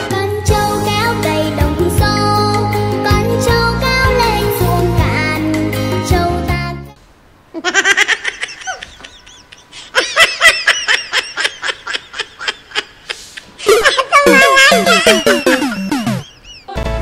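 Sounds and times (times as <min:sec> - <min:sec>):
high-pitched laughter: 0:07.6 - 0:16.9.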